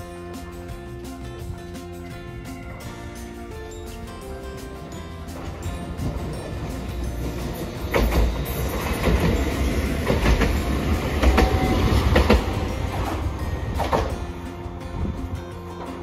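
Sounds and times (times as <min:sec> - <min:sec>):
tram rumbling past: 0:00.0 - 0:16.0
wheel clacks over rail joints: 0:04.7 - 0:16.0.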